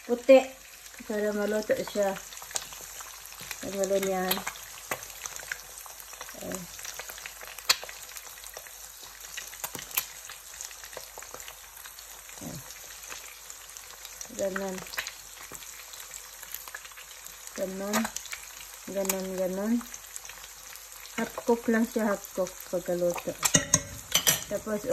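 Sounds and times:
eggs sizzling in oil: 0:00.0 - 0:24.9
fork ticking on pan: 0:23.4 - 0:24.5.

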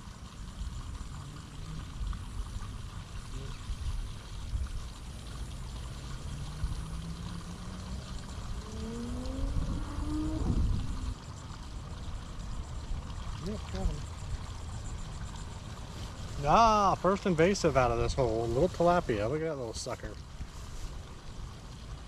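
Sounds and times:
water trickling in a ditch: 0:00.0 - 0:22.0
low rumble: 0:00.6 - 0:15.5
low hum rising in pitch: 0:04.6 - 0:15.1.

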